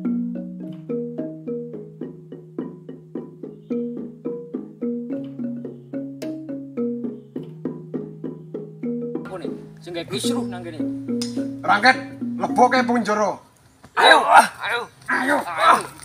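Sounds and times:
mallet percussion notes: 0:00.0 - 0:13.4
held low note: 0:09.4 - 0:13.3.

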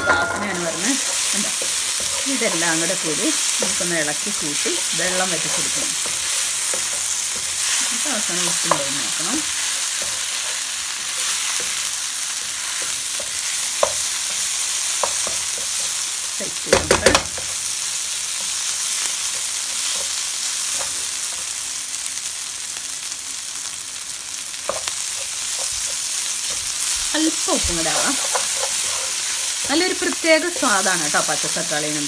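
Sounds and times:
food sizzling in pan: 0:00.0 - 0:32.0
spatula stirring and scraping: 0:00.4 - 0:16.2, 0:17.1 - 0:21.5, 0:24.7 - 0:32.0
spatula knocking on pan: 0:12.4 - 0:16.0, 0:16.6 - 0:17.6, 0:24.7 - 0:31.0.

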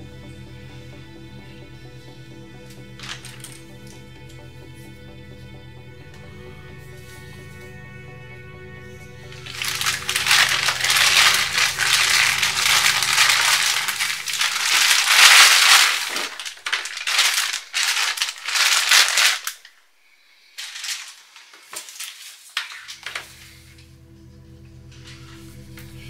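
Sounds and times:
plastic bag crinkling: 0:03.0 - 0:03.6, 0:09.4 - 0:19.8, 0:20.6 - 0:23.4.

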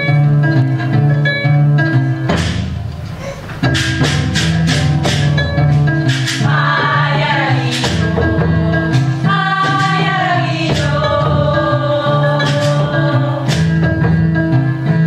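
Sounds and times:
kora plucked notes: 0:00.0 - 0:15.0
sharp percussive strikes: 0:02.2 - 0:14.6
voices singing in chorus: 0:06.3 - 0:13.9.

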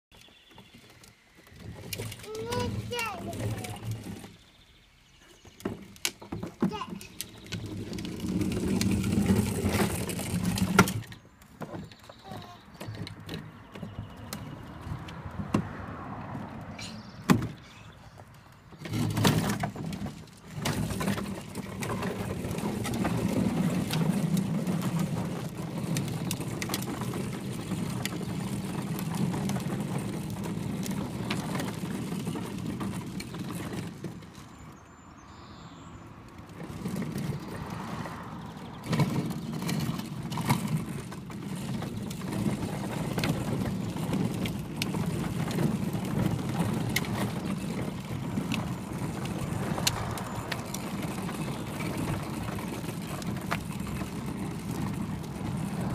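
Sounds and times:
plastic toy car wheels rumbling on tarmac: 0:00.1 - 0:55.9.

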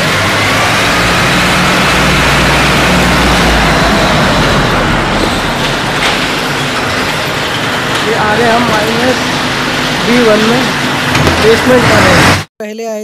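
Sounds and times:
mini tractor engine running: 0:00.0 - 0:12.2
rushing noise: 0:00.0 - 0:12.5.

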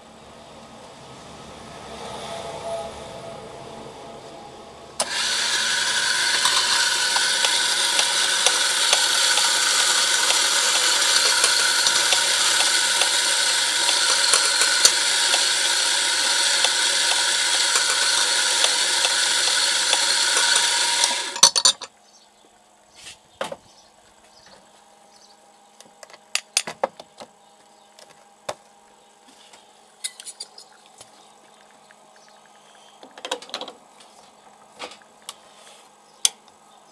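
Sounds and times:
coffee grinder grinding: 0:05.0 - 0:21.8
portafilter clicks and knocks: 0:05.0 - 0:21.9.

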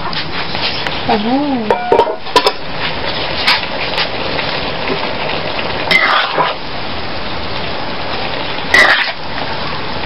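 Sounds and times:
vegetables sizzling in wok: 0:00.0 - 0:10.0
ladle scraping and knocking wok: 0:01.6 - 0:05.0, 0:05.8 - 0:06.6, 0:08.7 - 0:09.2.

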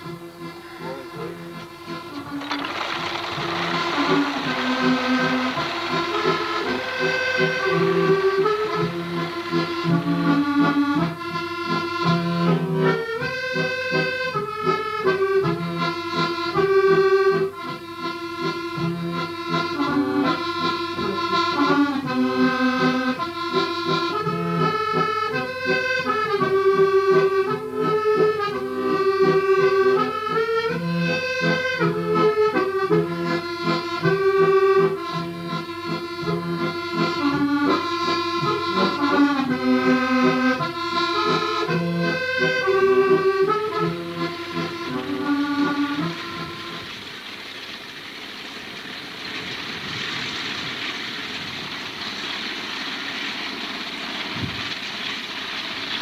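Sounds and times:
accordion playing: 0:00.0 - 0:47.0.

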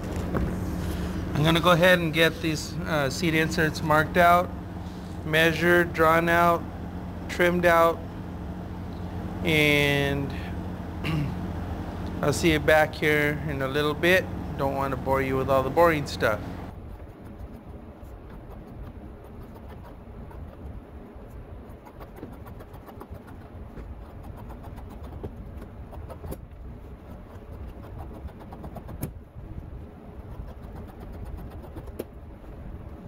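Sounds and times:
low steady rumble: 0:00.0 - 0:33.0
shears snipping leather: 0:21.7 - 0:29.2, 0:30.2 - 0:32.1.

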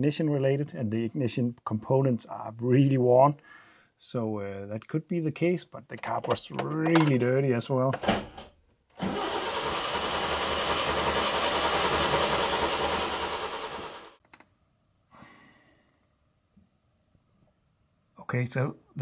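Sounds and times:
starter motor cranking engine: 0:09.0 - 0:14.2.

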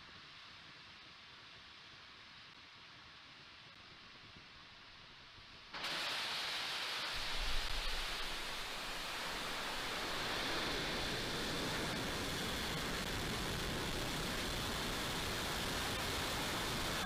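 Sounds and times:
rocket engines rushing roar: 0:05.8 - 0:17.0
deep crackling rumble: 0:07.2 - 0:17.0.

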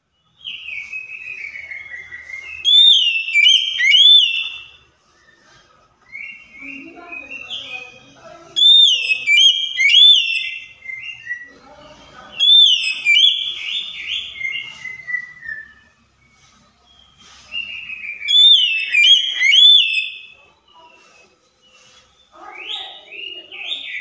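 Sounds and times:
bird singing whistled notes: 0:00.0 - 0:05.4, 0:06.1 - 0:11.5, 0:12.4 - 0:21.0.

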